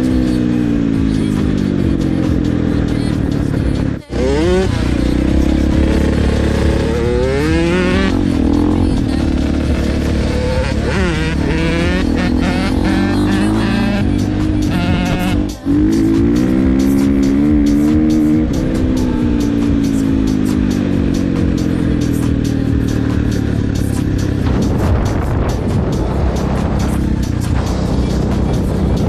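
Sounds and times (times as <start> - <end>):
dirt bike engine accelerating: 0.0 - 29.0.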